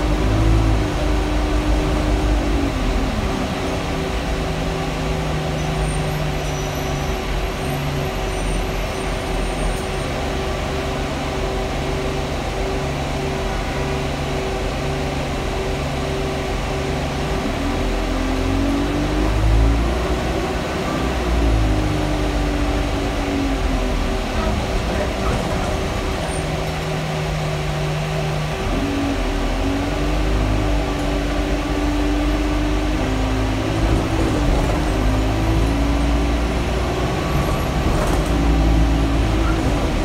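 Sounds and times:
bus engine and transmission whine: 0:00.0 - 0:40.0.

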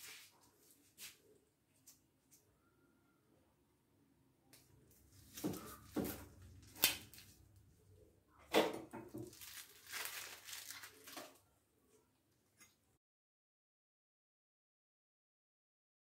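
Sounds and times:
plastic wrap crinkling and tearing: 0:05.1 - 0:07.4, 0:09.1 - 0:11.5.

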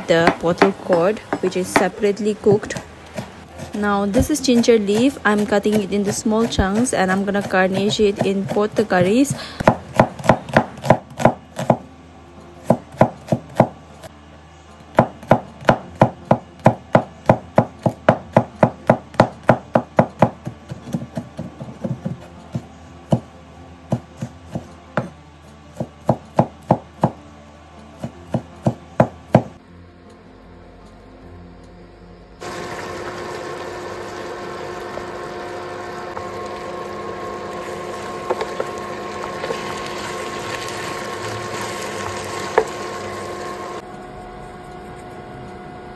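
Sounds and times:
knife chopping on wooden board: 0:00.0 - 0:11.8, 0:28.0 - 0:29.5
food sizzling in a pan: 0:32.4 - 0:43.8.

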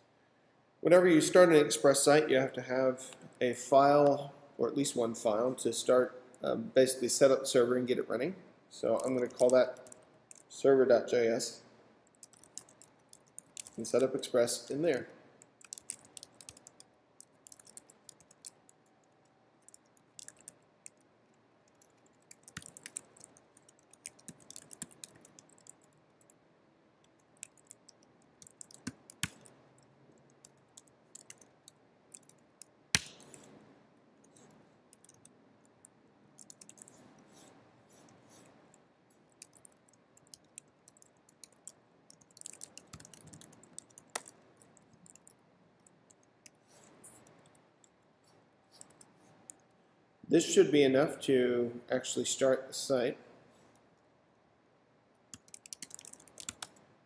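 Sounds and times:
computer keyboard typing: 0:09.0 - 0:10.5, 0:12.1 - 0:14.2, 0:15.6 - 0:21.0, 0:21.7 - 0:26.4, 0:27.0 - 0:33.5, 0:34.2 - 0:35.8, 0:36.4 - 0:38.5, 0:39.3 - 0:47.6, 0:48.8 - 0:49.6, 0:55.3 - 0:56.8.

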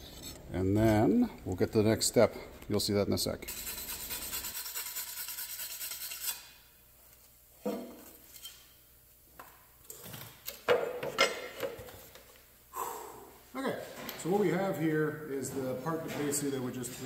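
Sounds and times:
wire brush scrubbing metal plate: 0:03.5 - 0:06.4.

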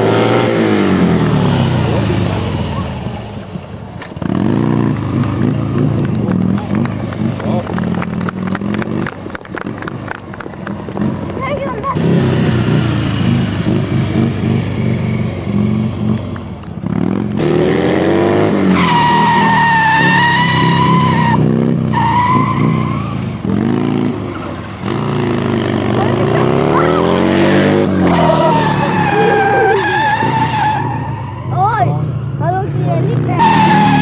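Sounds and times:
motorcycle engine revving: 0:00.0 - 0:34.0
tyre squealing on asphalt: 0:17.4 - 0:34.0.

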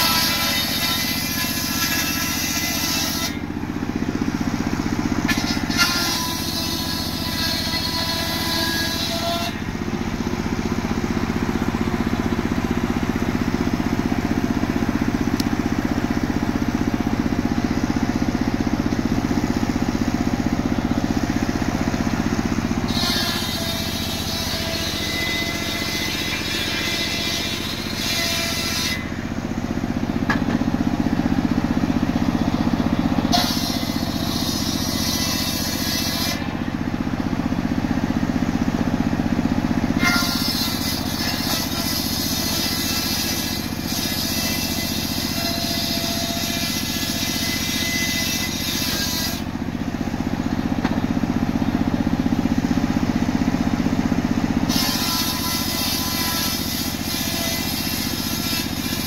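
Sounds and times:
log being ripped by saw: 0:00.0 - 0:12.4, 0:19.2 - 0:29.2, 0:30.2 - 0:36.7, 0:39.2 - 0:49.6, 0:54.6 - 0:59.0
circular saw blade droning: 0:00.0 - 0:59.0.

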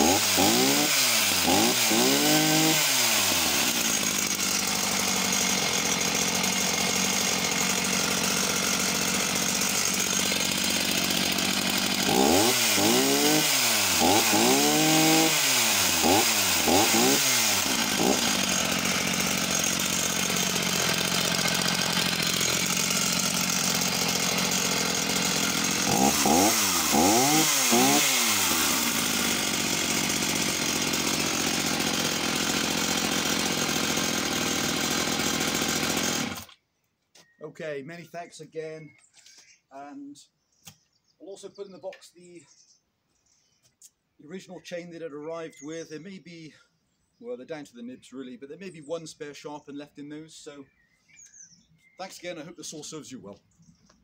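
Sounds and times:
chainsaw idling and revving: 0:00.0 - 0:36.6.

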